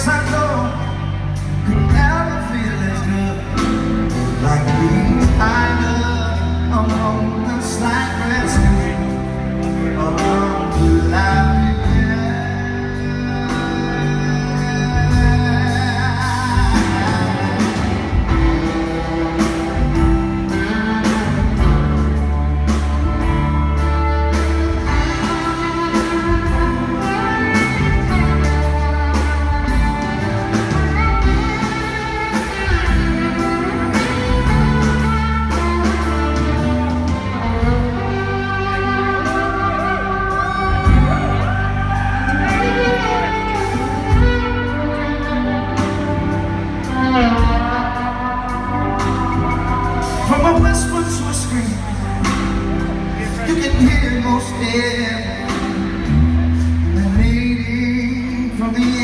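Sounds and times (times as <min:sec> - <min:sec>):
man singing lead vocal: 0:00.0 - 0:21.8, 0:50.0 - 0:59.0
bass guitar: 0:00.0 - 0:59.0
drum kit: 0:00.0 - 0:59.0
electric guitar: 0:00.0 - 0:59.0.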